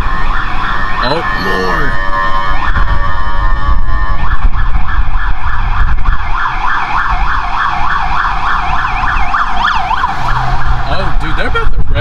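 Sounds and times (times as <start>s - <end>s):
engine and road rumble: 0.0s - 12.0s
police siren yelping: 0.0s - 12.0s.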